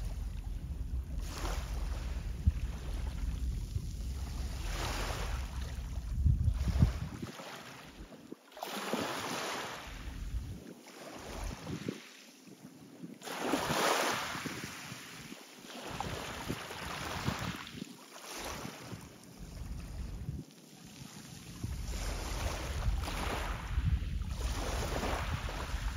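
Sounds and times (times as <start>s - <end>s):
wind buffeting microphone: 0.0s - 8.3s, 9.0s - 12.1s, 15.9s - 20.5s, 21.4s - 25.9s
waves washing against shore: 0.0s - 12.5s, 13.2s - 25.9s.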